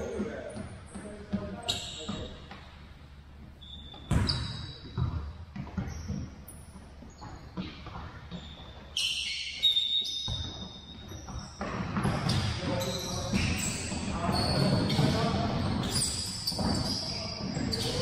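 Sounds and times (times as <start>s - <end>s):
sneakers squeaking: 0.0s - 18.0s.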